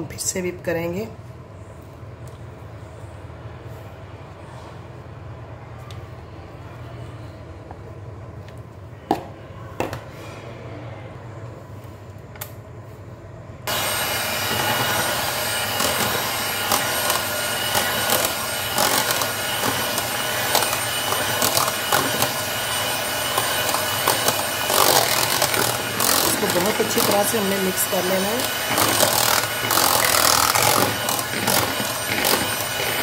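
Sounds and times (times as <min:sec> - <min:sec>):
electric hand mixer running: 0:13.7 - 0:33.0.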